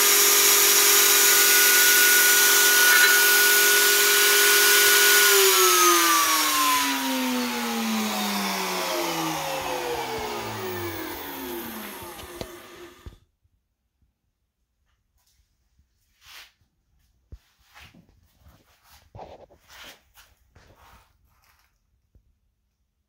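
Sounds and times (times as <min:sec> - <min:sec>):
router motor whining: 0:00.0 - 0:13.2.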